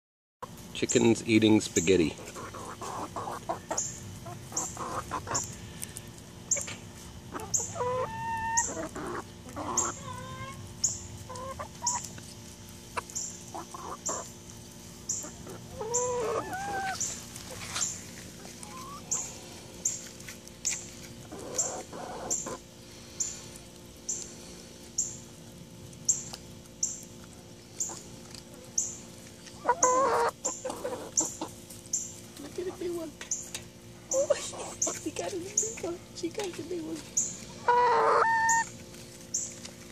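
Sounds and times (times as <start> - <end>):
hens clucking: 0.4 - 39.9.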